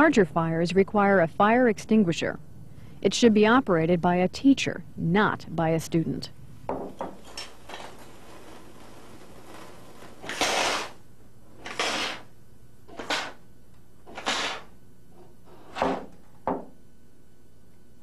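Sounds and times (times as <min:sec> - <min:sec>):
fire extinguisher hissing blasts: 0:08.1 - 0:11.0, 0:11.6 - 0:12.3, 0:13.0 - 0:13.4, 0:14.1 - 0:14.7.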